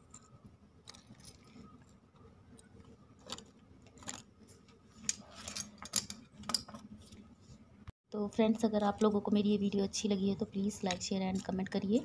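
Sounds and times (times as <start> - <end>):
brittle pieces clicking: 2.5 - 4.3.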